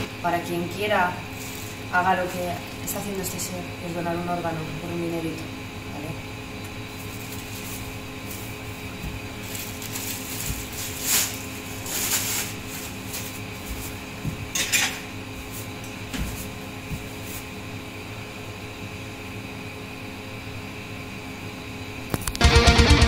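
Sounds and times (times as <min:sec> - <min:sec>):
steady hum: 0:00.0 - 0:23.0
plastic sheeting rustling: 0:01.3 - 0:01.9, 0:06.9 - 0:14.6
handling noise: 0:07.0 - 0:17.5.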